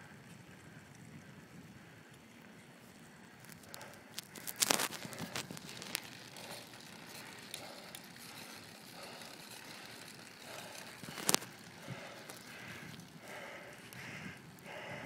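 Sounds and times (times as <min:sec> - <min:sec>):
person breathing hard: 0:03.4 - 0:15.0.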